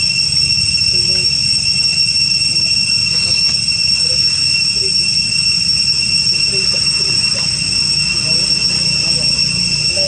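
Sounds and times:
cicadas droning: 0.0s - 10.0s.

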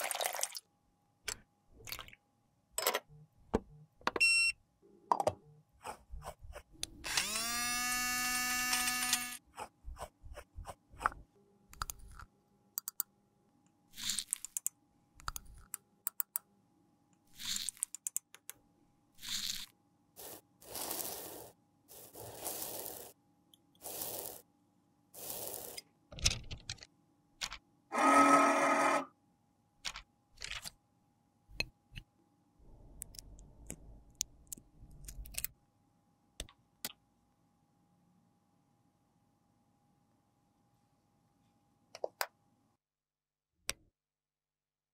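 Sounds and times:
small electric grinder spinning: 7.1s - 9.4s
powder crunching grind: 19.2s - 23.2s, 23.8s - 24.4s, 25.2s - 25.8s.

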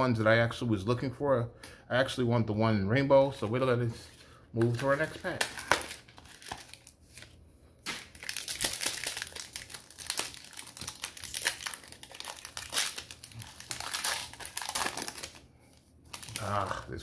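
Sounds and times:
foil packaging crinkling: 3.5s - 17.0s.

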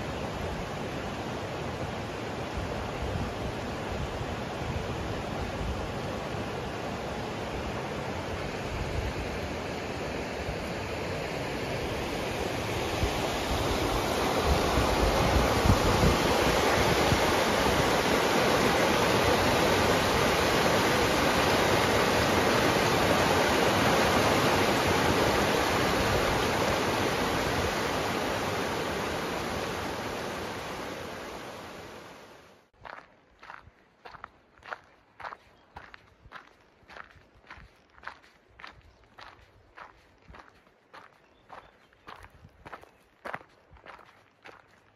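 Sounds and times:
river rushing over rapids: 0.0s - 32.5s.

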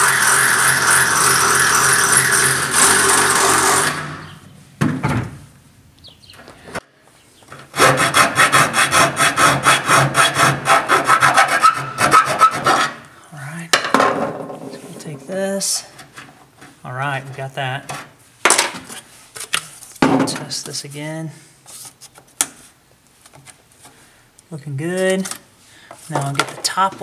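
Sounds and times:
hand file rasping metal: 0.0s - 4.2s, 7.7s - 13.0s
cordless drill running: 0.0s - 4.3s.

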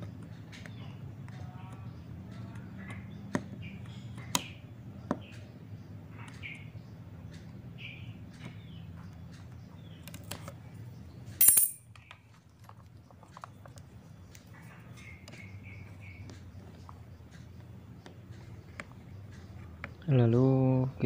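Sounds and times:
loud metallic clink: 11.4s - 11.8s.

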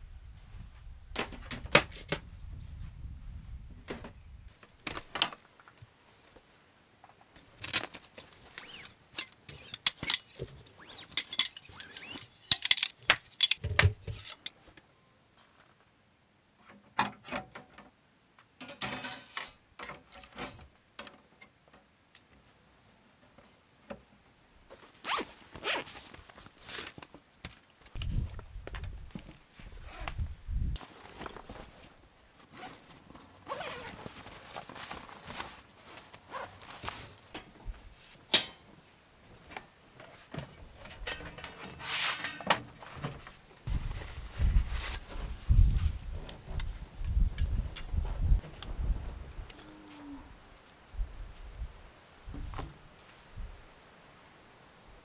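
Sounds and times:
handling clicks and knocks: 7.4s - 14.5s.

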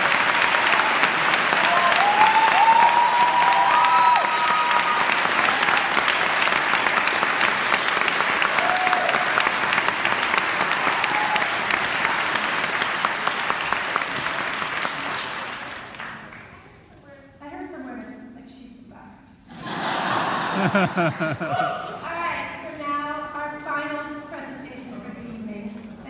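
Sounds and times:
audience applauding: 0.0s - 16.7s, 19.9s - 21.8s
people whooping: 0.2s - 6.3s, 8.4s - 9.5s, 10.6s - 12.5s, 21.2s - 22.0s.

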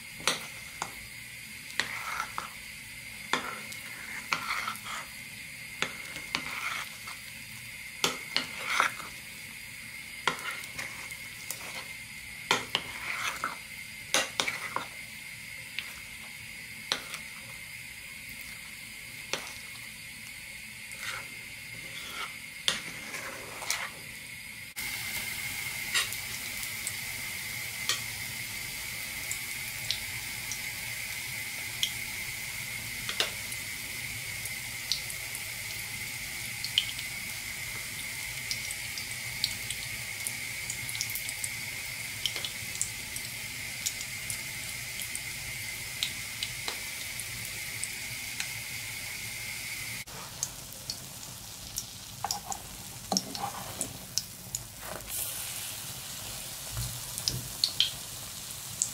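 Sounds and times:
batter sizzling in oil: 0.0s - 58.9s
metal spatula scraping pan: 3.4s - 5.1s, 5.8s - 7.2s, 8.0s - 9.1s, 21.0s - 24.0s, 53.1s - 54.0s.

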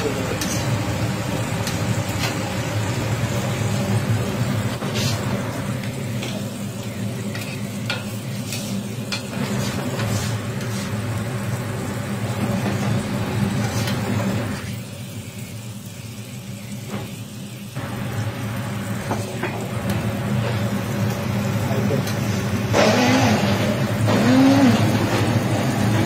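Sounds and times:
chicken sizzling on griddle: 0.0s - 26.0s
metal spatula scraping griddle: 0.3s - 0.8s, 4.8s - 5.3s, 7.3s - 11.0s, 13.6s - 14.1s.

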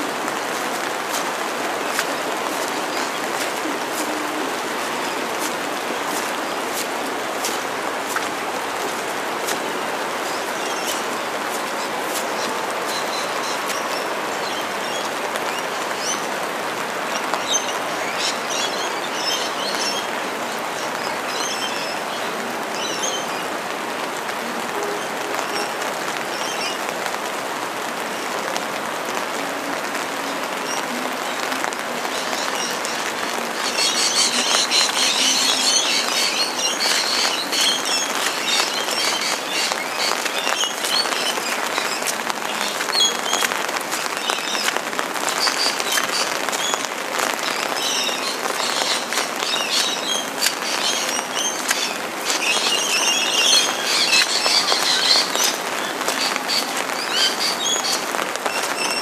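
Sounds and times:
rain falling: 0.0s - 59.0s.

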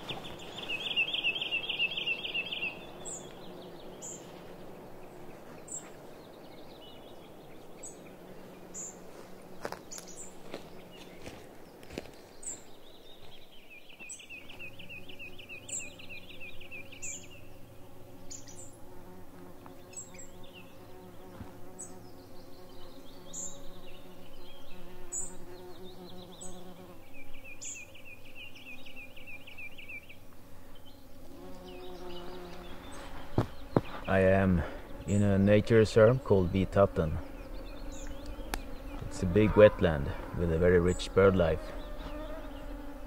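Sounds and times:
mosquitoes whining: 0.0s - 13.3s, 14.0s - 43.0s
bird trilling: 0.2s - 3.2s.

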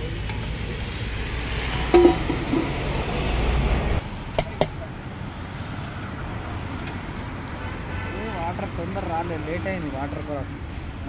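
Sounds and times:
street traffic rumble: 0.0s - 11.0s
steel utensils clinking: 2.0s - 2.8s.

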